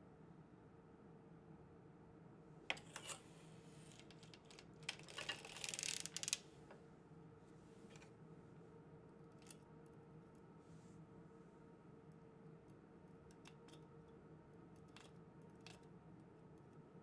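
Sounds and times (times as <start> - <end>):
knitting machine needles clicking: 4.0 - 6.4.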